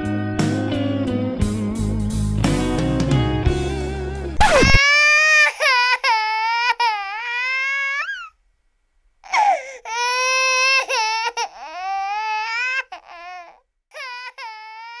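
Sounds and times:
baby crying: 4.4s - 8.3s, 9.2s - 15.0s.

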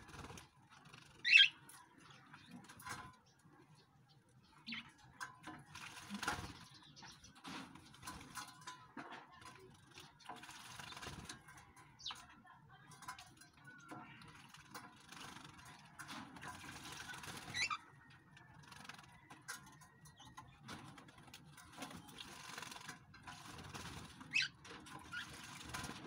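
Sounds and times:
birds splashing in water: 0.0s - 3.6s, 4.4s - 26.0s
sharp bird calls: 1.2s - 1.6s.

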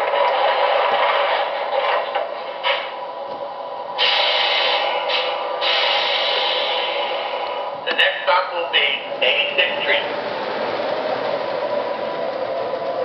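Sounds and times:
rushing rail noise: 0.0s - 13.0s.

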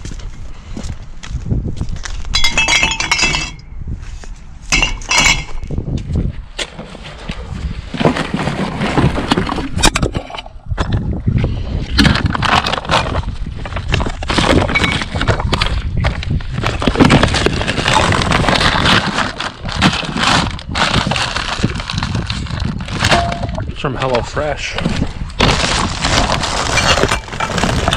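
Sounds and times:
plastic packaging crinkling: 17.2s - 23.7s.

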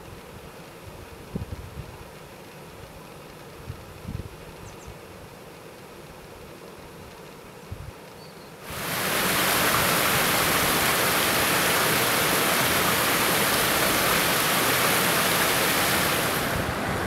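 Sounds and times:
water rushing through weir: 8.7s - 17.0s.

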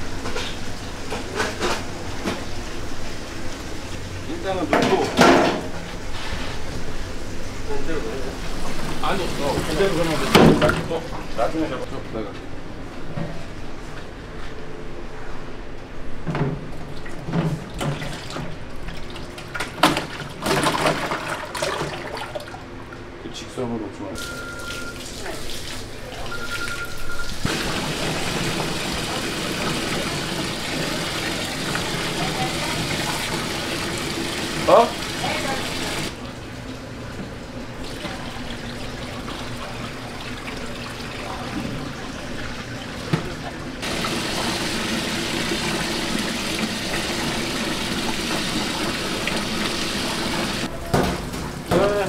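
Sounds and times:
water trickling in a basin: 24.2s - 27.5s.

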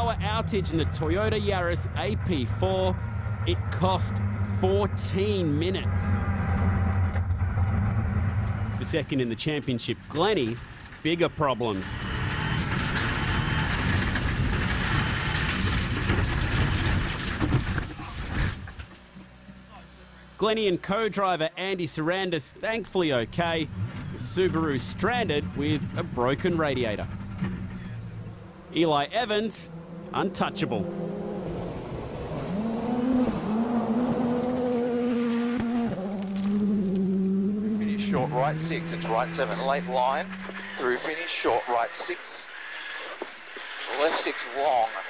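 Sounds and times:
car engine: 0.0s - 45.0s
tyres on gravel: 8.9s - 19.5s, 35.5s - 44.8s
gravel spatter: 12.6s - 19.1s, 35.6s - 37.2s.

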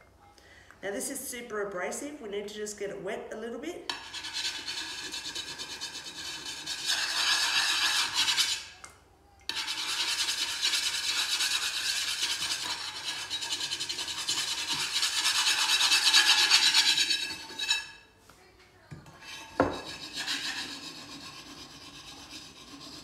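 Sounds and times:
abrasive block scrubbing metal pot: 3.9s - 8.8s, 9.5s - 18.1s, 19.1s - 23.0s.

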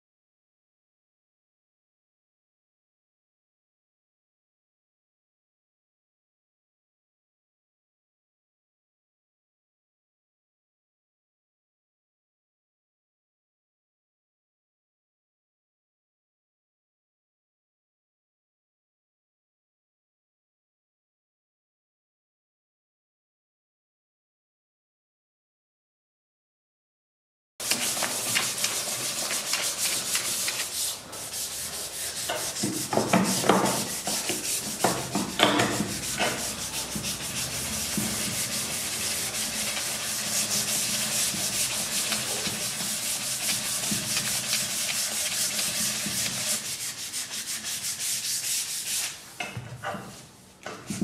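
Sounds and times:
sandpaper sanding wood: 27.6s - 49.3s.

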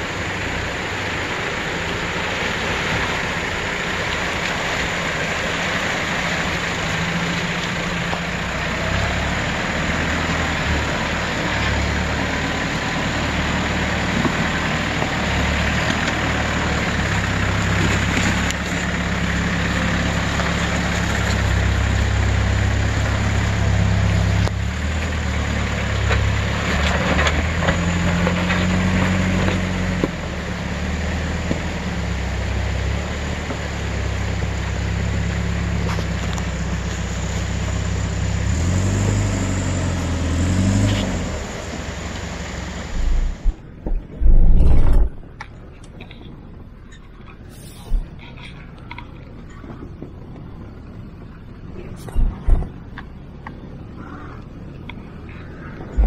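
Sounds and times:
diesel engine at low revs: 0.0s - 56.0s
water splashing around wheels: 0.1s - 43.8s.

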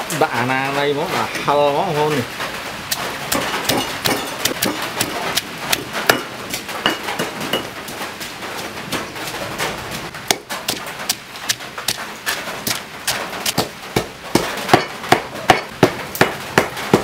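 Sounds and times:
pestle pounding in stone mortar: 2.9s - 9.4s, 10.1s - 17.0s.

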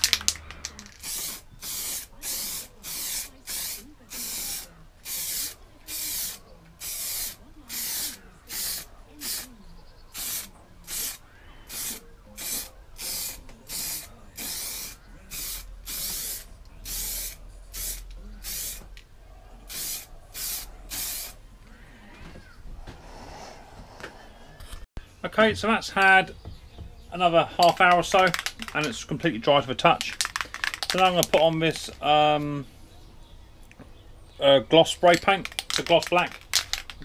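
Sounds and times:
spray can hissing: 0.9s - 9.5s, 10.2s - 18.9s, 19.7s - 21.4s, 35.4s - 37.0s.

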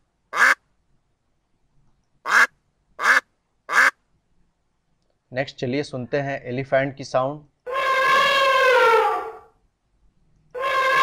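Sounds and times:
elephant trumpeting: 7.7s - 9.5s, 10.6s - 11.0s.

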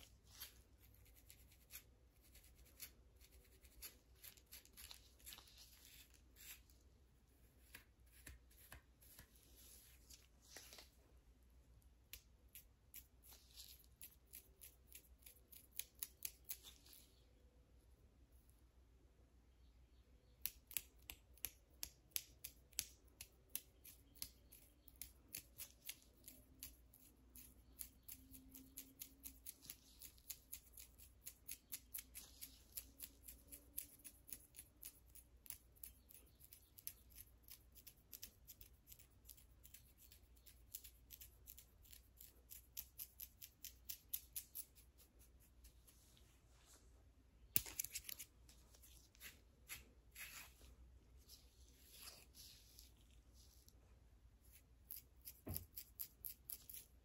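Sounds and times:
fingernails scratching scalp: 0.4s - 6.7s.

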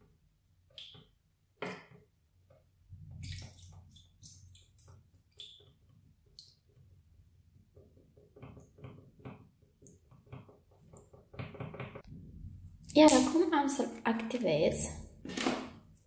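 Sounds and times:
plastic spoon stirring glue: 0.6s - 12.1s.

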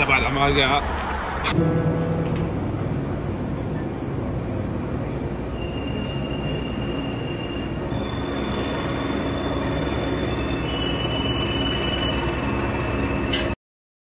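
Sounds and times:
digital piano note clusters: 1.6s - 11.1s.

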